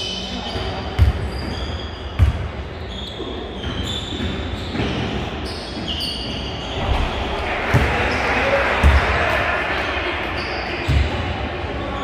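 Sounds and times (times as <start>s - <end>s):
large hall noise: 0.0s - 12.0s
basketball bouncing on gym floor: 0.5s - 2.7s, 7.7s - 8.0s, 8.8s - 9.2s, 10.8s - 11.2s.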